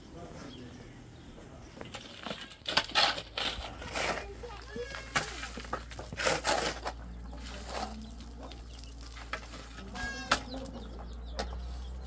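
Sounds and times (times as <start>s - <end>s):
shovels scraping gravelly soil: 1.8s - 10.4s.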